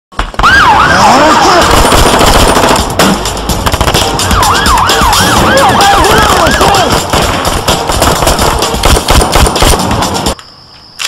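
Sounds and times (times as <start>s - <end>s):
sirens sweeping up and down: 0.3s - 1.7s, 4.0s - 6.9s
rapid automatic gunfire: 1.2s - 4.4s, 5.2s - 10.2s.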